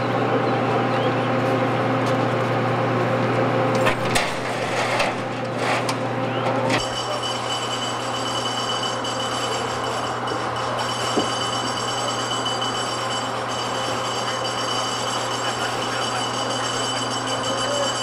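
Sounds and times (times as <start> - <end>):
low mechanical hum: 0.0 - 18.0.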